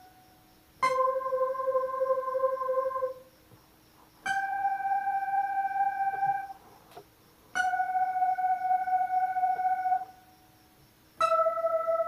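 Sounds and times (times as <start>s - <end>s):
synth lead notes on keyboard: 0.8s - 3.2s, 4.3s - 6.6s, 7.6s - 10.1s, 11.2s - 12.0s.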